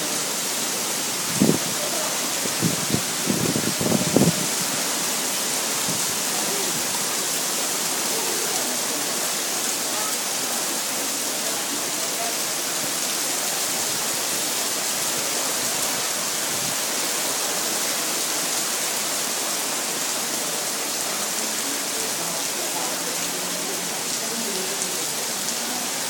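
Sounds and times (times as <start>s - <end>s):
heavy rain pouring: 0.0s - 26.0s.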